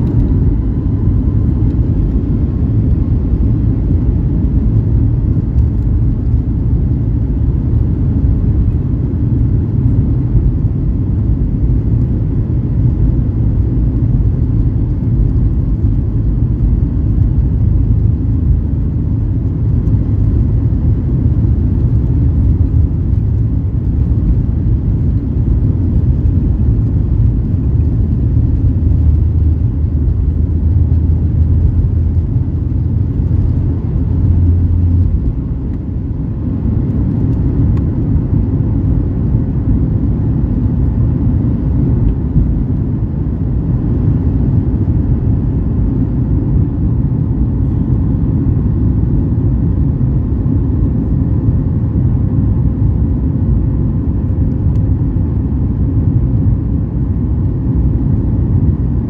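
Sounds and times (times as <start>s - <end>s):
takeoff roll rumble: 0.0s - 43.0s
jet engines at takeoff thrust: 0.0s - 59.0s.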